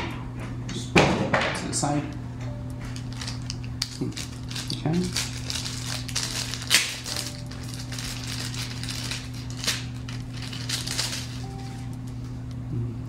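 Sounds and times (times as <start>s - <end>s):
steady low hum: 0.0s - 13.0s
plastic bag crinkling: 2.9s - 12.2s.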